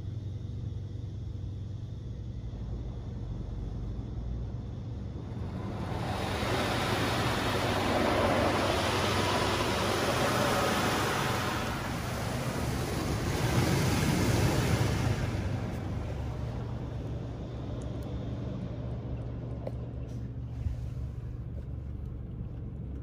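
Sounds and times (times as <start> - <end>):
steady low rumble: 0.0 - 23.0
water spray hitting car roof: 5.5 - 16.2.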